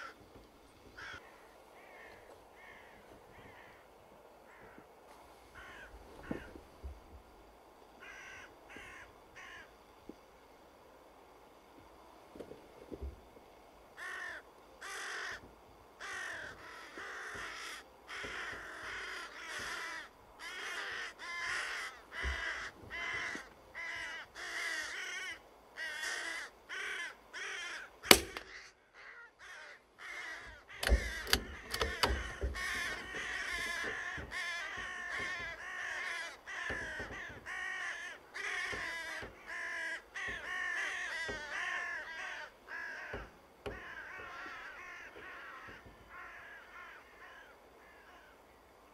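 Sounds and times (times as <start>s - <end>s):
crows cawing: 0.0s - 0.3s, 0.9s - 4.9s, 5.5s - 6.6s, 8.0s - 9.9s, 14.0s - 48.4s
rifle shot: 28.1s - 28.6s.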